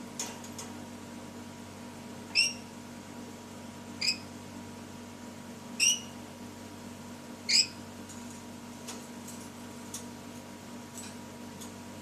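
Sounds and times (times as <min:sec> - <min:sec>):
parrot high-pitched calls: 0:02.3 - 0:02.7, 0:04.0 - 0:04.3, 0:05.8 - 0:06.2, 0:07.5 - 0:07.8.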